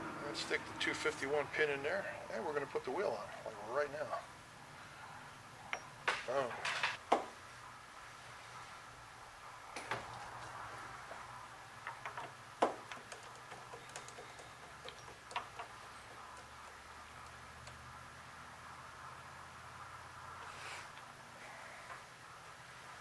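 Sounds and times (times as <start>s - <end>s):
faint steady hum: 0.0s - 23.0s
parts clicking and tapping: 11.8s - 17.8s.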